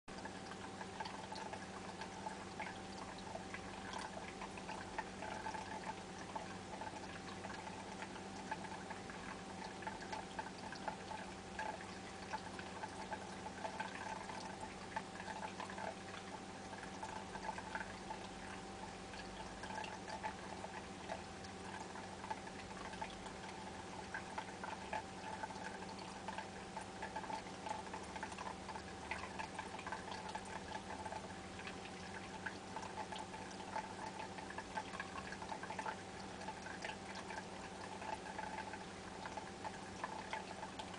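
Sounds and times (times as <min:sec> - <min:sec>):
aquarium pump hum: 0:00.1 - 0:40.9
trickling water: 0:00.1 - 0:40.9.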